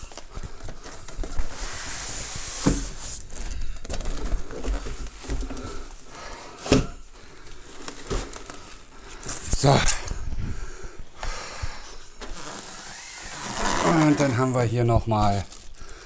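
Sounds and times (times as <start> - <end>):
foam scraping against cardboard: 1.5 - 3.2, 12.3 - 14.7.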